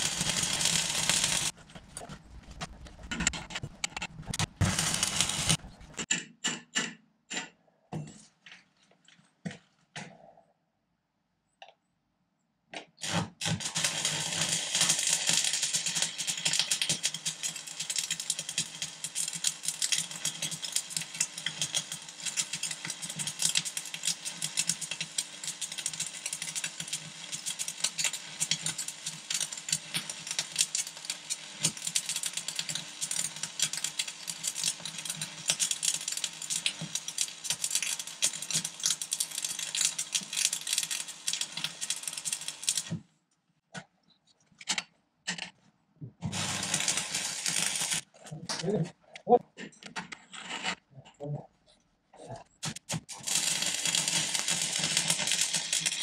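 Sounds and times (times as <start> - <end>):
welding arc crackling and sizzling: 0.0 - 6.1, 13.0 - 43.0, 46.2 - 48.6, 52.5 - 56.0.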